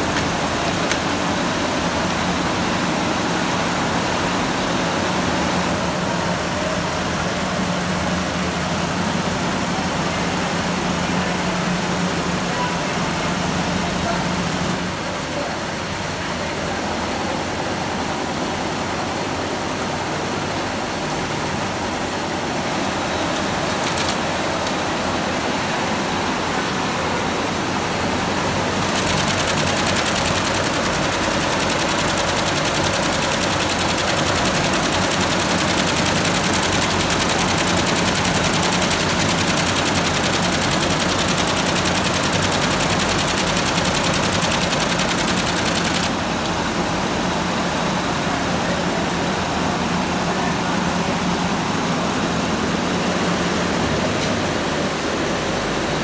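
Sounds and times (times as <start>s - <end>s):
embroidery machine stitching: 28.7s - 46.3s.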